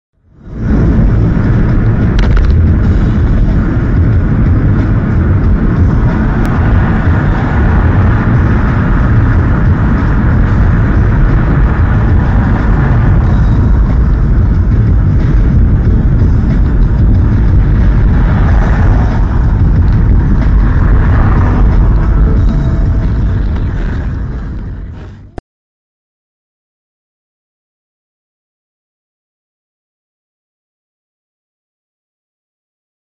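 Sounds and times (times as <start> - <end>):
car road and engine rumble: 0.2 - 25.4.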